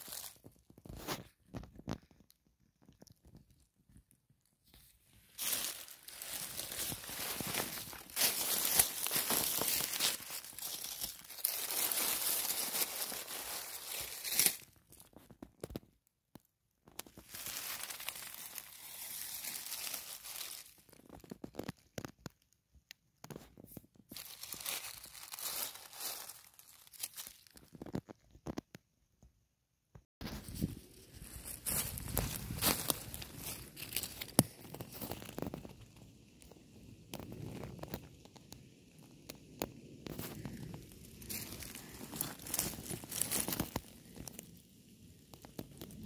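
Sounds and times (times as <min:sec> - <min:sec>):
dry leaves rustling: 0:00.0 - 0:00.6, 0:04.7 - 0:15.2, 0:17.0 - 0:21.7, 0:24.1 - 0:27.8, 0:30.2 - 0:36.1, 0:40.1 - 0:44.5.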